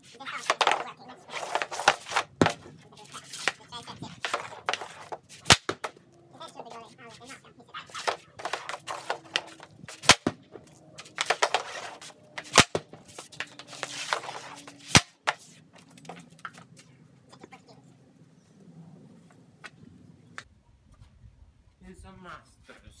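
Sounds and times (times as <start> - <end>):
stick blade scraping concrete: 0.0 - 16.9
hockey puck shot cracks: 4.2 - 6.0, 8.0 - 10.4, 11.0 - 15.4.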